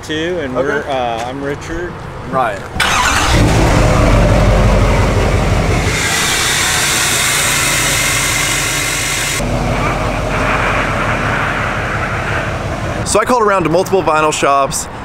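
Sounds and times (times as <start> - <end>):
diesel engine idling: 2.8 - 13.3
broad hiss: 5.8 - 9.4.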